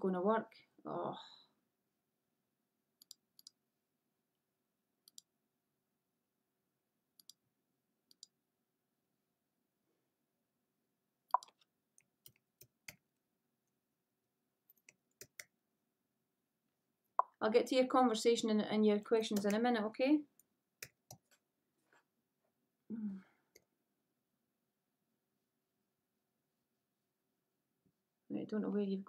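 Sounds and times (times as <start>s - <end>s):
computer mouse clicks: 3.0s - 3.6s, 5.0s - 5.3s, 7.2s - 7.4s, 8.1s - 8.4s, 14.7s - 15.5s, 19.2s - 19.6s.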